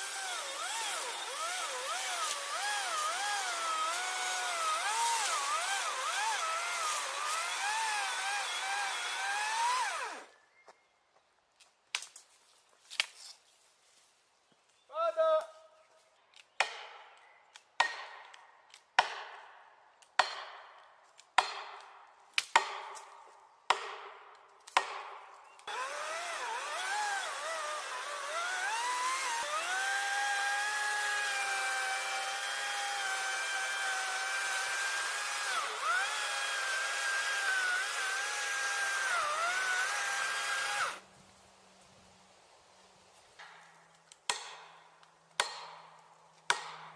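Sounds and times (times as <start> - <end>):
electric chainsaw cutting wood: 0.0 - 10.3, 25.6 - 41.1.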